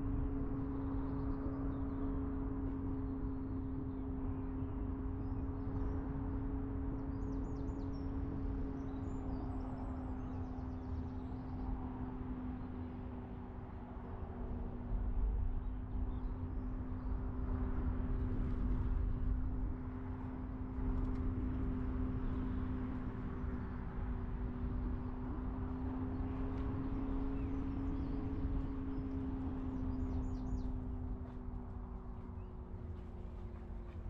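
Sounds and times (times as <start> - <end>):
car engine and road noise: 16.8 - 34.0.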